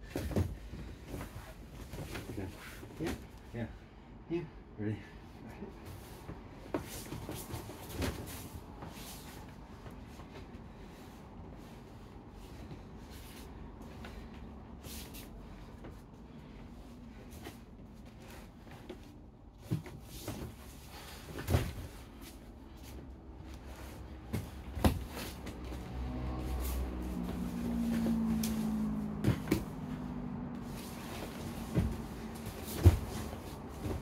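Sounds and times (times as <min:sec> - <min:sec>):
people grappling on foam mats: 0:00.0 - 0:03.7, 0:05.4 - 0:34.0.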